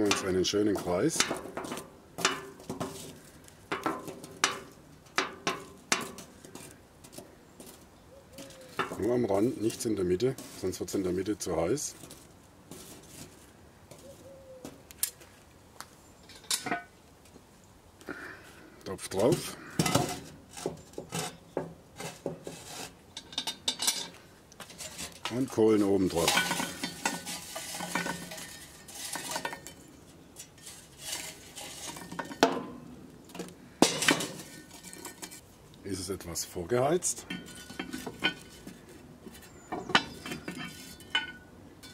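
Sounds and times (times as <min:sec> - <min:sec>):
charcoal scraping on metal lid: 0:00.0 - 0:06.8, 0:08.4 - 0:12.0, 0:19.2 - 0:35.4, 0:37.2 - 0:41.9.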